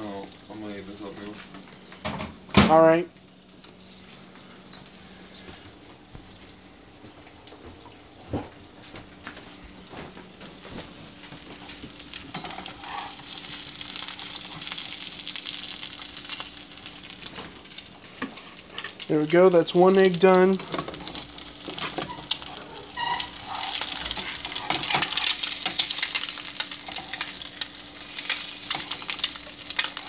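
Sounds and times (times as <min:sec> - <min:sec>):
egg sizzling in a pan: 0:09.8 - 0:30.0.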